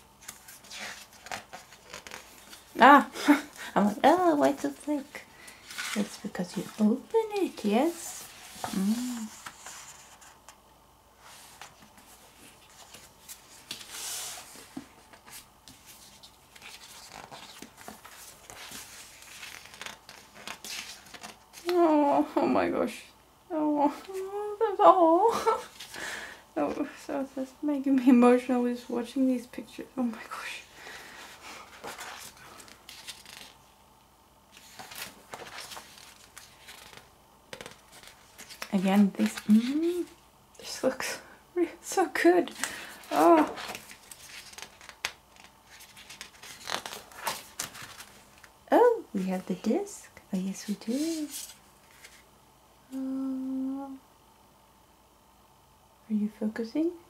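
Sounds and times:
paper pages rustling: 0.0s - 10.6s, 11.2s - 21.9s, 31.1s - 33.7s, 34.5s - 40.2s, 42.5s - 48.6s, 50.6s - 52.3s.

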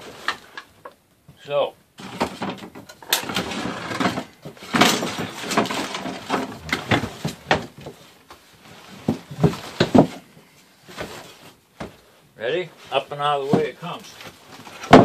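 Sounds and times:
wooden table knocking and scraping: 9.0s - 10.2s.

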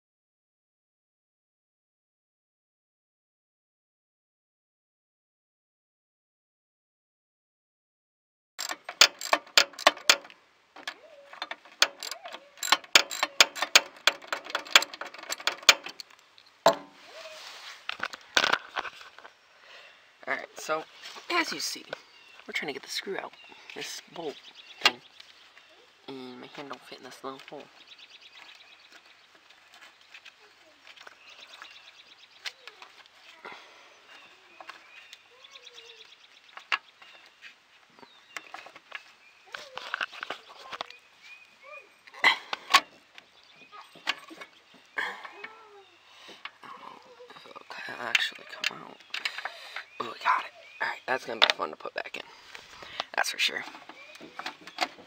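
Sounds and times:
hand tool clicking on metal: 8.6s - 16.1s
scraping and rustling: 8.6s - 19.4s, 20.6s - 22.1s, 36.5s - 41.4s
birds chirping: 8.6s - 55.0s.

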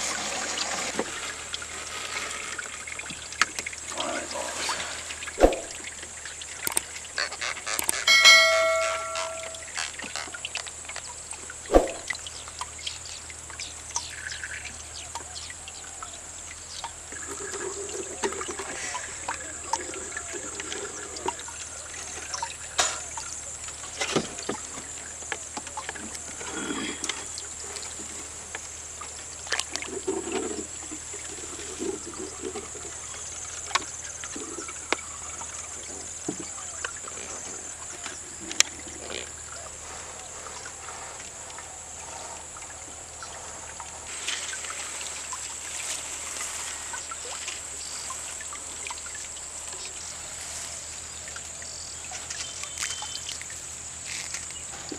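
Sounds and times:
water trickling and dripping: 0.0s - 54.9s
knocks clicks and net rustles: 6.6s - 11.0s
short bright chime: 8.0s - 9.7s.

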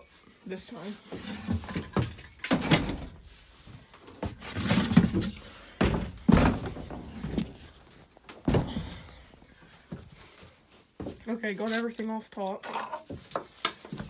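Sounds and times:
handling rustle: 3.1s - 14.0s
heavy thumps on wooden crate: 5.8s - 7.3s.

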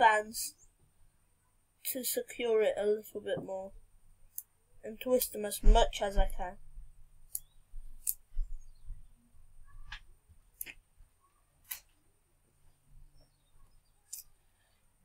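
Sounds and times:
rubber bands clicking and tapping: 9.8s - 10.8s.

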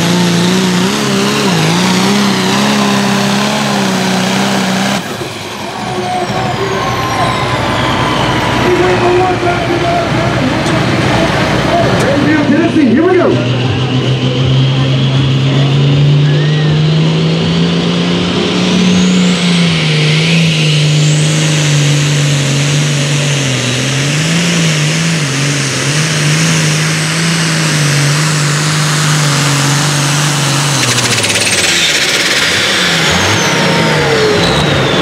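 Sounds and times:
diesel engine at full throttle: 0.0s - 35.0s
turbo whistle: 16.2s - 17.1s.

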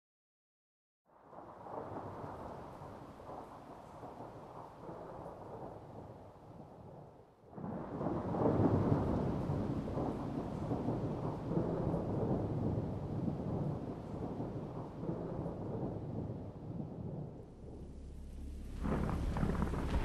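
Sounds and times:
thunder rumbling: 1.2s - 20.0s.

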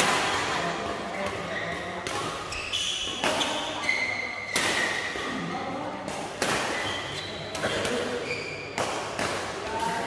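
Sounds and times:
racket hitting shuttlecock: 0.0s - 10.0s
shoes squeaking on court: 1.5s - 5.3s, 6.6s - 8.8s.

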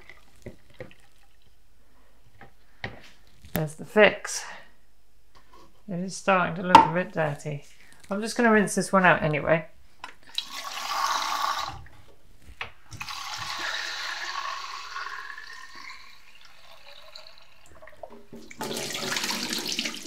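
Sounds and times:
tap water running into sink: 13.0s - 20.0s.

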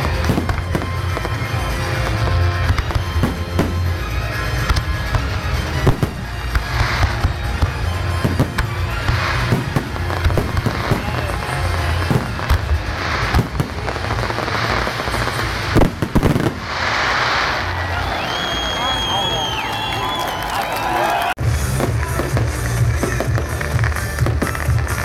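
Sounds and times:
firework bangs: 0.0s - 25.0s
firework crackling: 0.0s - 25.0s.

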